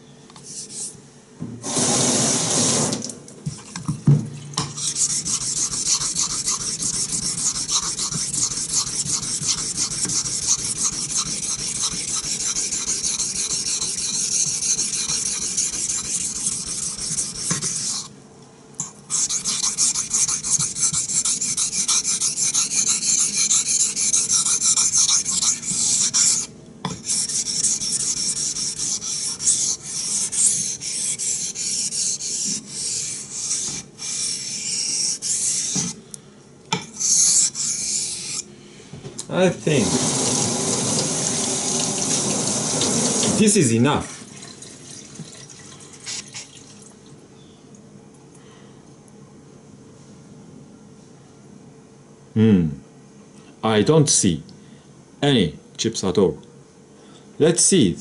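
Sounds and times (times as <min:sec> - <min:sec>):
knife scraping on whetstone: 0:04.7 - 0:18.1, 0:18.8 - 0:36.0, 0:36.8 - 0:38.5.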